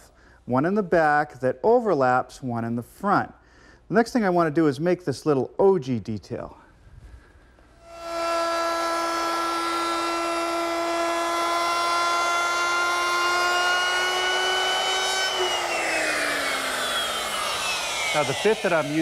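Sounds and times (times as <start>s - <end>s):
router whining while cutting wood: 7.8s - 19.0s.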